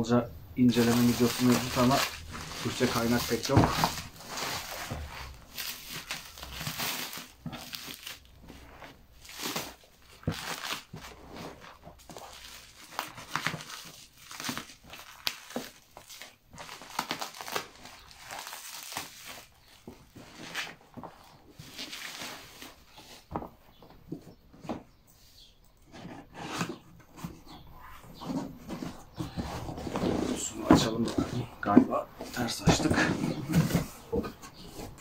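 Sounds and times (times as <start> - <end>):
plastic film crinkling and tearing: 0.7 - 23.3.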